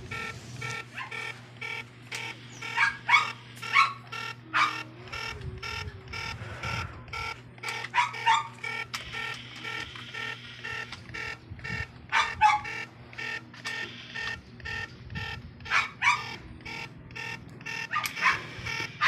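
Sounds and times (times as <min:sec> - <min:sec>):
meter beeping rapidly: 0:00.0 - 0:19.0
dog barking: 0:00.9 - 0:01.3, 0:02.7 - 0:04.9, 0:07.9 - 0:08.6, 0:12.1 - 0:12.8, 0:15.7 - 0:16.4, 0:17.9 - 0:18.5.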